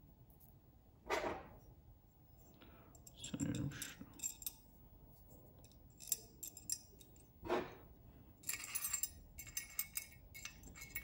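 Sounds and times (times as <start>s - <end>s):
metal bracket clicks and clinks: 3.0s - 4.6s, 5.6s - 7.3s, 8.4s - 11.0s.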